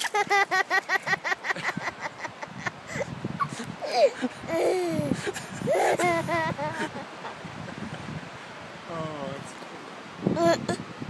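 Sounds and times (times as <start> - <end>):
toddler giggling: 0.0 - 7.4, 10.4 - 10.8
toddler vocalizing: 3.8 - 7.0, 10.4 - 10.8.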